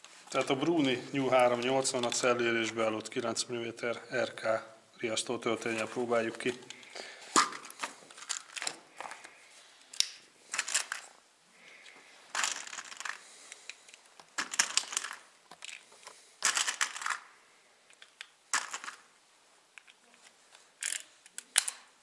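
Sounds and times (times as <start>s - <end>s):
cartridges rattling in plastic tin: 7.6s - 8.8s, 10.5s - 11.1s, 12.3s - 13.3s, 14.0s - 17.3s, 18.5s - 19.1s.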